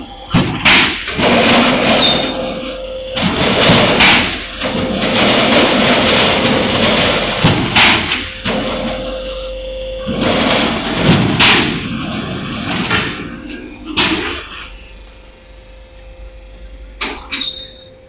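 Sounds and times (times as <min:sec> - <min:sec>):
roll-forming machine humming: 0:00.0 - 0:17.2
mechanical working noise: 0:00.0 - 0:18.0
sharp knocks: 0:00.4 - 0:09.5, 0:10.2 - 0:13.2.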